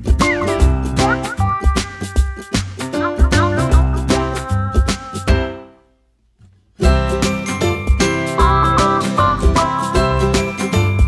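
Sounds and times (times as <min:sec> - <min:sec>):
background music: 0:00.0 - 0:06.0, 0:06.8 - 0:11.0.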